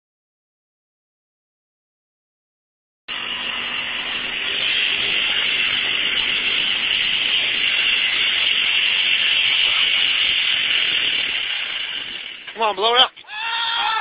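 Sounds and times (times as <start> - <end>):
car engine at full revs: 3.1 - 12.5.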